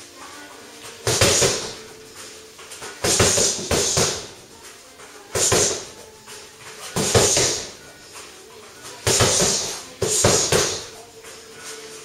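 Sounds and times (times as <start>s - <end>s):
punches hitting heavy bag: 1.0s - 1.8s, 3.0s - 4.3s, 5.3s - 5.9s, 7.0s - 7.8s, 9.0s - 10.9s.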